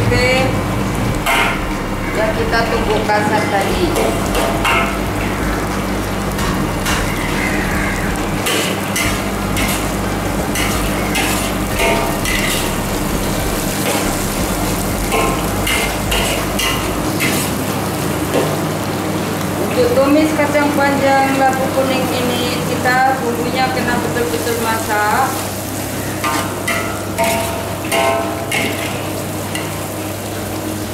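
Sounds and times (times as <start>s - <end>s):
steady low hum: 0.0s - 30.9s
food sizzling in a wok: 0.4s - 30.9s
spatula scraping a wok: 6.3s - 18.5s, 24.4s - 29.9s.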